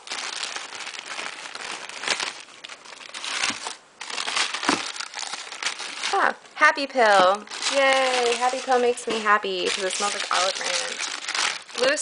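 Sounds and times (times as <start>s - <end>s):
plastic and paper bags rustling: 0.0s - 12.0s
sharp crackles: 7.2s - 12.0s.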